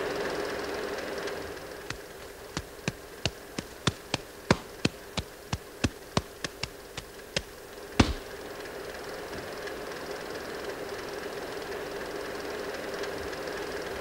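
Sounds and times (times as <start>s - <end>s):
sharp dry taps: 1.9s - 8.4s.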